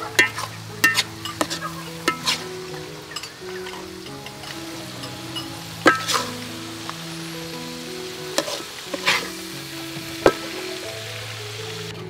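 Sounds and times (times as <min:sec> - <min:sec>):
metal spatula scraping a wok: 0:00.0 - 0:06.4, 0:08.3 - 0:10.8
light sizzle: 0:00.0 - 0:12.0.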